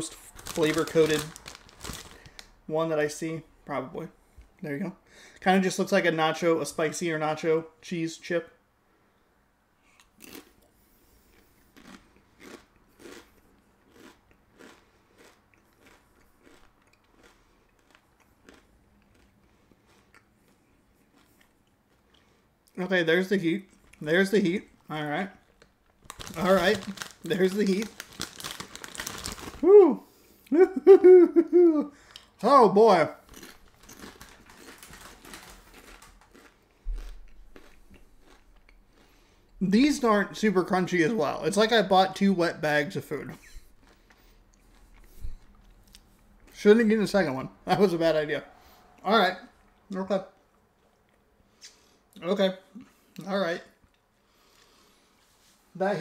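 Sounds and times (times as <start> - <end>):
crunching tortilla chip: 0.0 - 2.5, 11.3 - 22.2, 25.5 - 29.8, 33.2 - 39.2.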